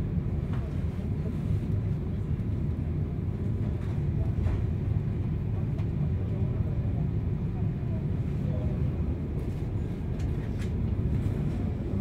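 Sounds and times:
train rumbling along track: 0.0s - 12.0s
faint clicks from rails: 0.4s - 1.0s, 3.5s - 6.0s, 9.4s - 11.8s.

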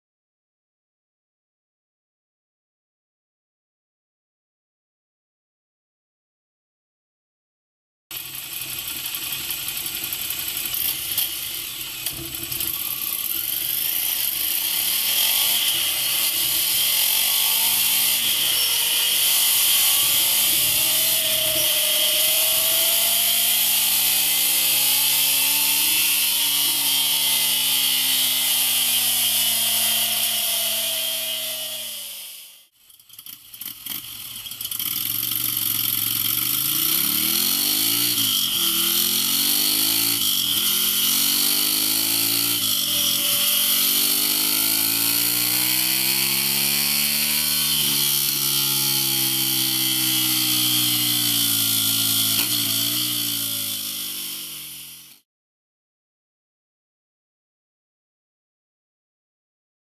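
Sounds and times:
motorcycle engine revving: 8.1s - 55.2s.

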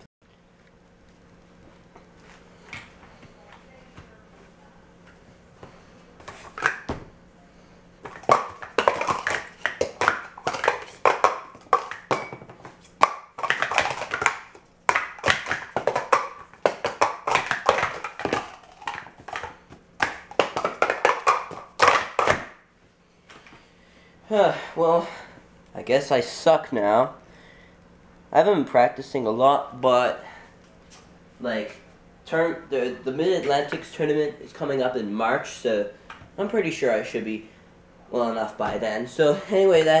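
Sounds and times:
plastic cups clacking: 8.0s - 22.6s.

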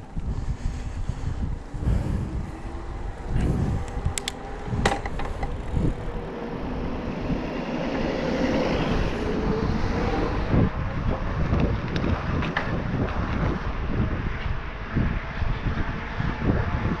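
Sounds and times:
rushing wind: 0.0s - 17.0s
electric bike motor whine: 0.1s - 12.2s
sharp clicks: 3.8s - 4.4s.

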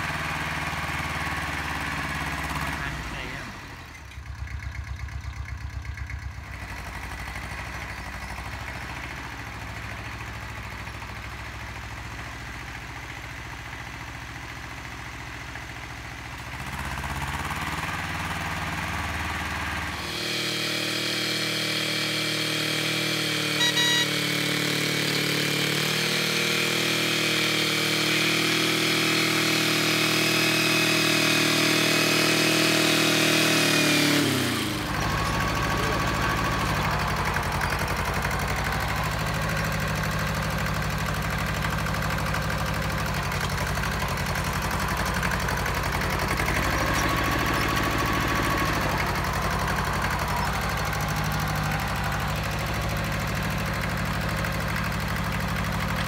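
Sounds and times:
tractor diesel engine running: 0.0s - 56.0s
rotary tiller working soil: 16.5s - 56.0s.

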